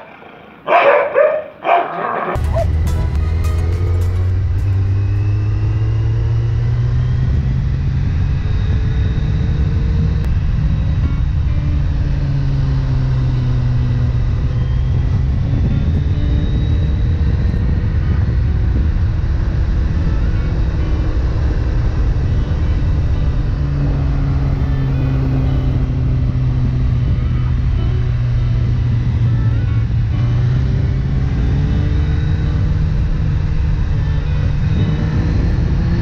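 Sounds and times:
wind noise: 2.3 - 36.0
motorcycle engine running: 2.4 - 36.0.

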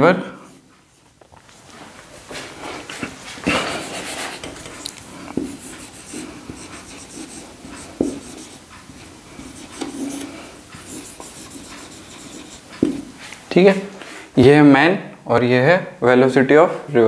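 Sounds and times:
pen scratching: 3.7 - 13.2.

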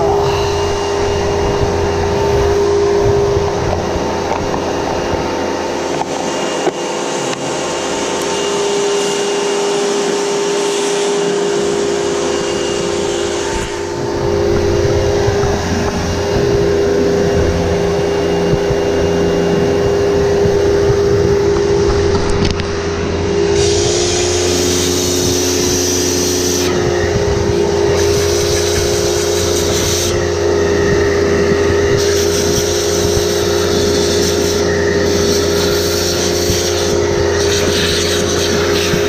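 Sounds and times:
vacuum cleaner motor whining: 0.0 - 39.0.

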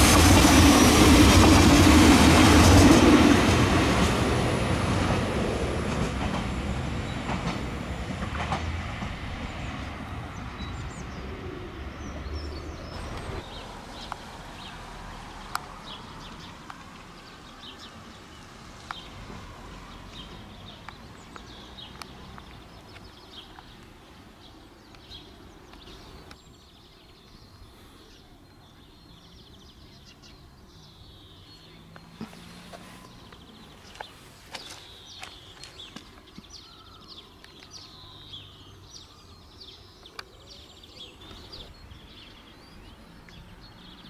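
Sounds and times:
train passing: 0.0 - 27.0, 28.1 - 44.0
bird chirps: 20.2 - 44.0.

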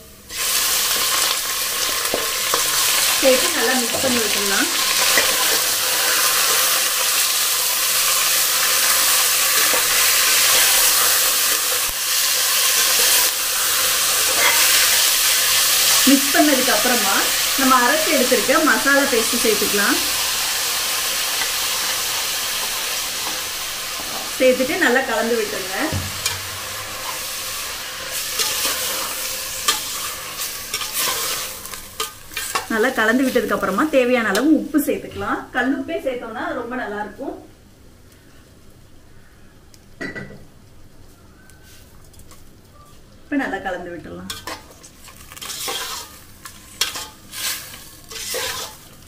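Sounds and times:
meat and onions sizzling in oil: 0.0 - 35.4, 44.3 - 49.0
metal spoon stirring: 44.3 - 48.9
metal spoon scraping and knocking pot: 48.1 - 48.8.

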